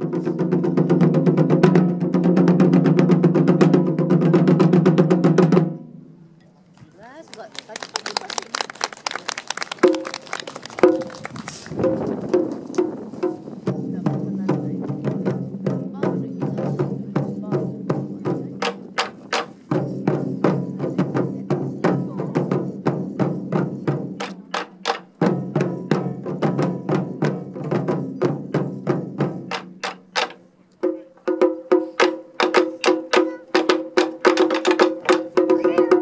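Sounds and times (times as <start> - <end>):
taiko drumming: 0.0 - 5.9, 9.6 - 36.0
low drum tone: 10.8 - 36.0.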